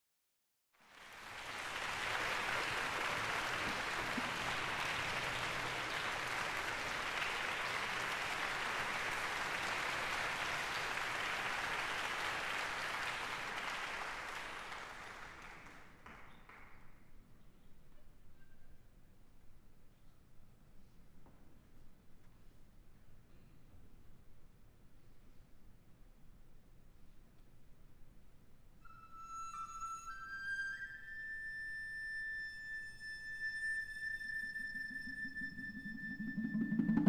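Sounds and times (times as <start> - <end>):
audience applauding: 0.8 - 16.8.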